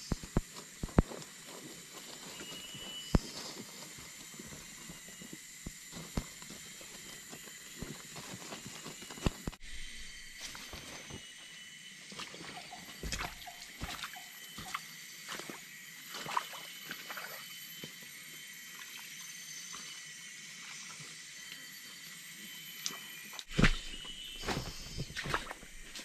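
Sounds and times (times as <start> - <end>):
insects droning: 0.0 - 26.0
footsteps splashing through stream: 12.6 - 14.8, 23.5 - 26.0.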